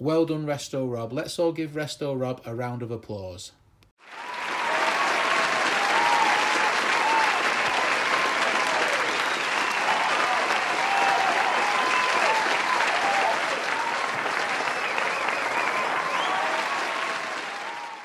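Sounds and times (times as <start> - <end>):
crowd applauding: 4.0 - 18.0
crowd cheering: 4.0 - 18.0.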